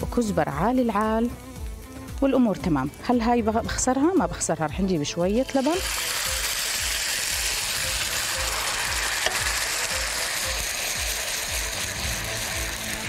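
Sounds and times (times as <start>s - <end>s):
ghee sizzling: 0.0s - 13.0s.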